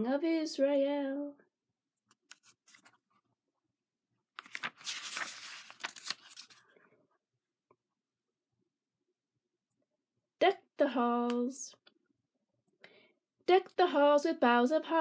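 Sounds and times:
book page turning: 2.1s - 3.2s, 4.4s - 6.7s.

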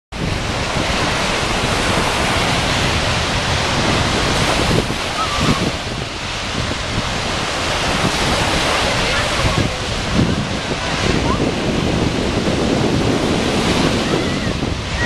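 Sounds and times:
wind rumbling on microphone: 0.1s - 15.0s
small waves washing onto sand: 0.2s - 15.0s.

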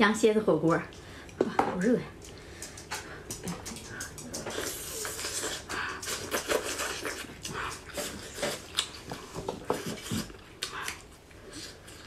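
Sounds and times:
person biting and chewing meat: 3.3s - 12.0s.

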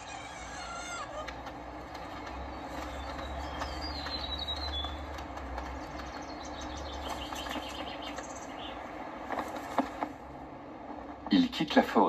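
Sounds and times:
high bird chirps: 0.0s - 8.8s
low rumble: 0.0s - 11.7s
outdoor ambience hiss: 0.0s - 12.0s.

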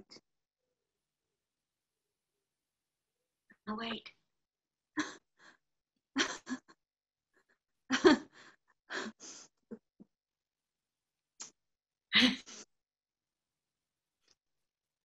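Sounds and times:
women laughing softly: 6.2s - 6.7s.

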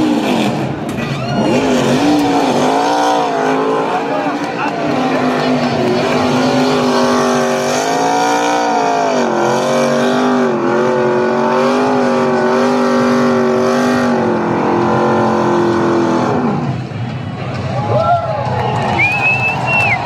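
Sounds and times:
race truck engine revving: 0.0s - 17.7s.

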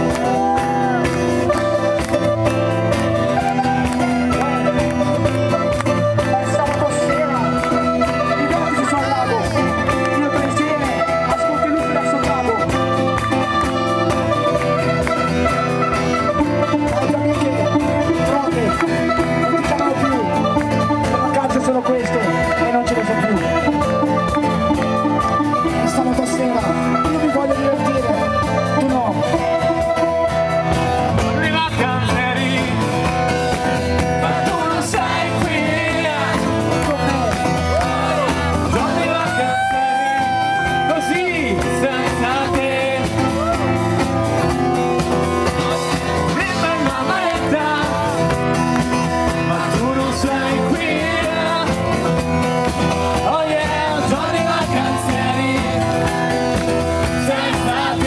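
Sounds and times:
live pop-rock band playing: 0.0s - 58.0s.

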